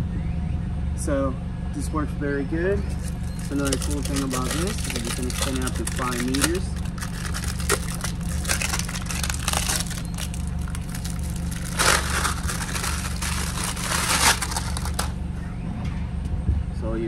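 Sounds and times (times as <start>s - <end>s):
plastic bag crinkling: 2.8s - 15.2s.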